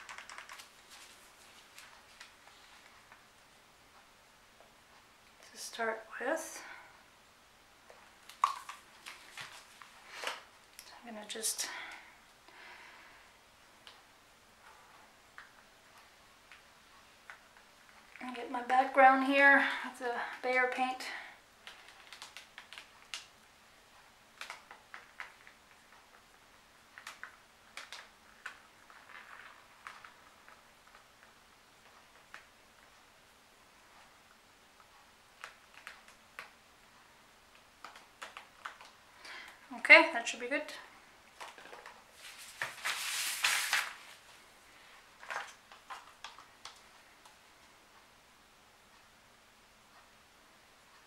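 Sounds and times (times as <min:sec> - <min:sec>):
faint clicks from handling a record: 0:00.0 - 0:03.2, 0:26.9 - 0:33.0
gloved hands rustling: 0:41.4 - 0:44.5.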